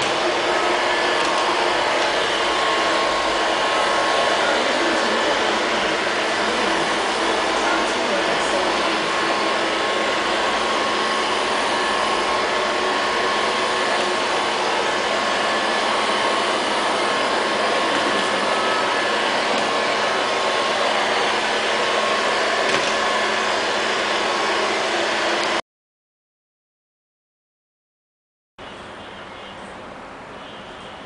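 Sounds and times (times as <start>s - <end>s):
robot vacuum cleaner whirring: 0.0s - 25.6s.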